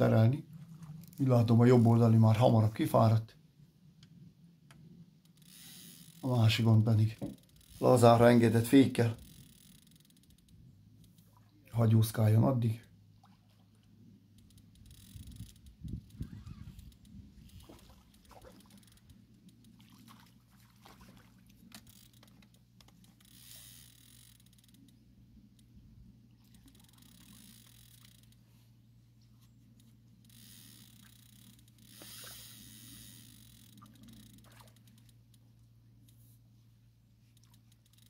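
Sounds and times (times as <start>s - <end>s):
steady low hum: 0.0s - 38.0s
faint clicks: 9.2s - 11.4s, 21.7s - 28.5s, 29.6s - 36.5s, 37.1s - 38.0s
fish splashing at water surface: 19.7s - 21.6s.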